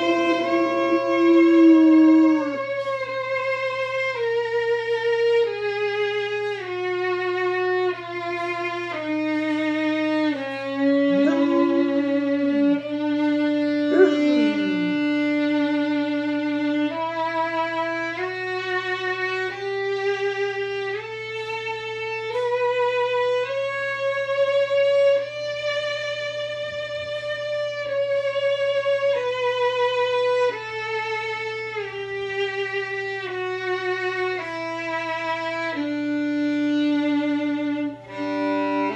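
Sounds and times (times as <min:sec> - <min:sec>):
dog howling: 0:00.0 - 0:03.8, 0:10.4 - 0:15.8
violin slow melody: 0:00.0 - 0:38.9.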